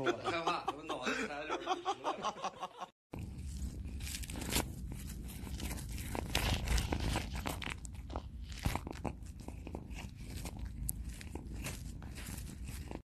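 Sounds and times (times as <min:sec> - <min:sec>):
cat chewing food crunchily: 0:03.1 - 0:13.0.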